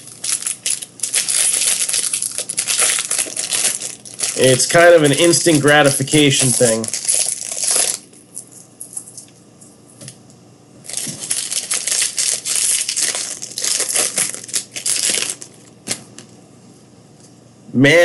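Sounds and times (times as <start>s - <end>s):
plastic wrappers crinkling: 0.0s - 8.5s, 10.8s - 16.3s.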